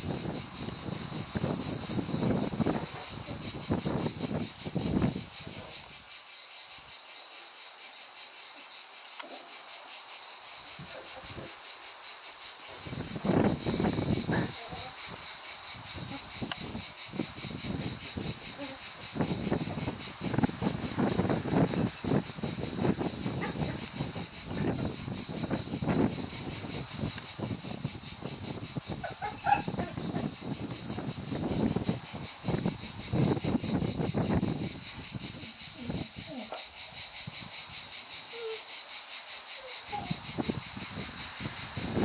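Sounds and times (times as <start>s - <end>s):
high chirring hiss: 0.0s - 42.0s.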